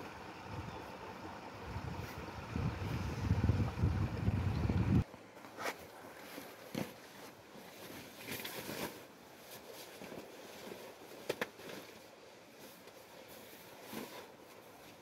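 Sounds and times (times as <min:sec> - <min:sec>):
cloth rustling: 0:05.5 - 0:15.0.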